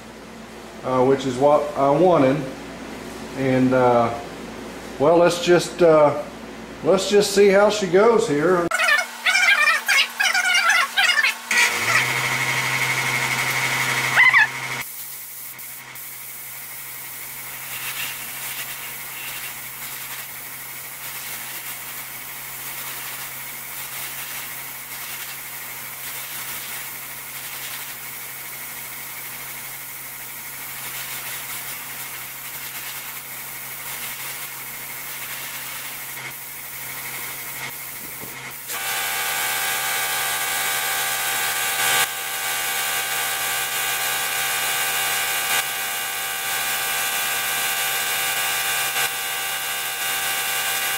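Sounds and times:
motor whining: 0:08.7 - 0:14.9
spray gun hissing air: 0:14.8 - 0:37.0.

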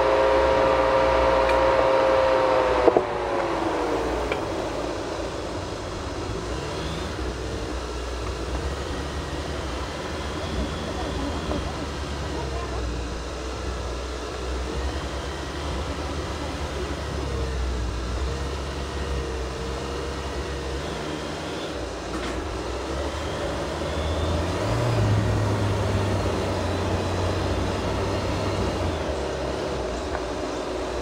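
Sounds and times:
car engine droning: 0:00.0 - 0:31.0.

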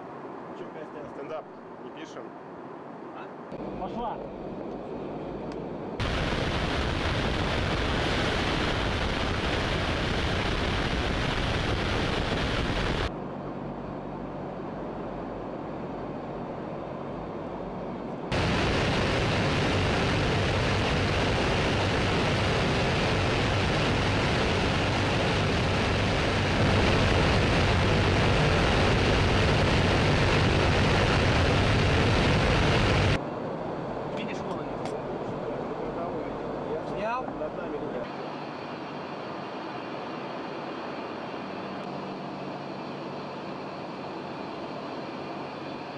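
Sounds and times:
low bomber engine drone: 0:02.7 - 0:45.9
rushing air: 0:06.0 - 0:13.2, 0:18.3 - 0:33.2.

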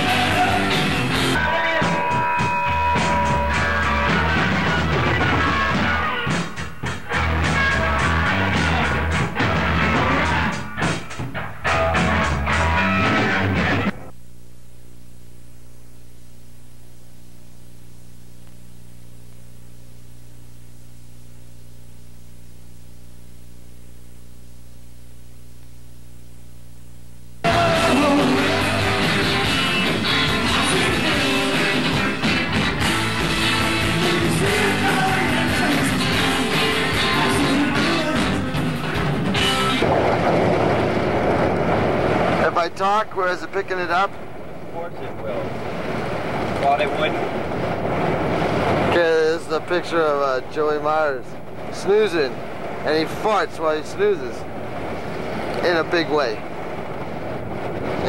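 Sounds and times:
rock music: 0:00.0 - 0:14.1, 0:27.4 - 0:43.0
low electrical hum: 0:13.9 - 0:27.5
wind noise on microphone: 0:39.1 - 0:42.8, 0:44.1 - 0:58.0
steady hiss: 0:40.3 - 0:58.0.

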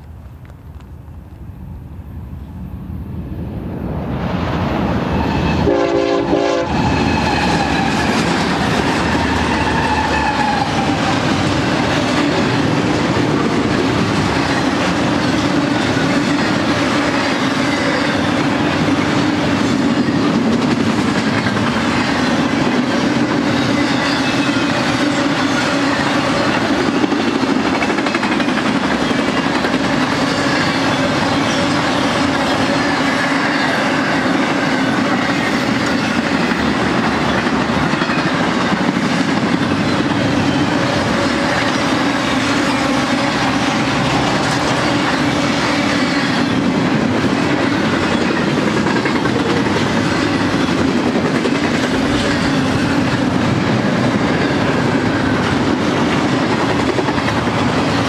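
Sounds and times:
diesel locomotives passing: 0:00.0 - 0:58.0
train horn blast: 0:05.4 - 0:08.0
train wheels clattering on rails: 0:05.4 - 0:58.0.

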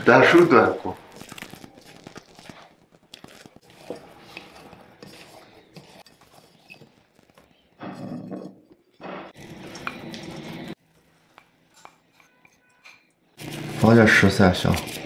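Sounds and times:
dough worked in glass bowl: 0:00.0 - 0:15.0.

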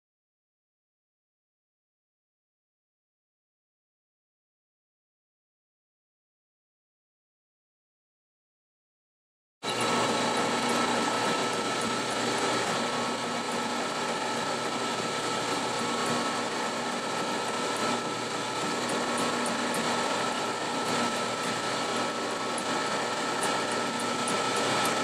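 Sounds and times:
sheet-metal machine running: 0:09.6 - 0:25.0.

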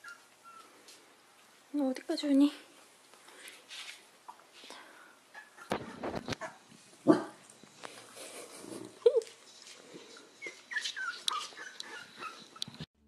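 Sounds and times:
puppies whimpering: 0:10.0 - 0:12.8
puppy yip: 0:10.4 - 0:12.8.

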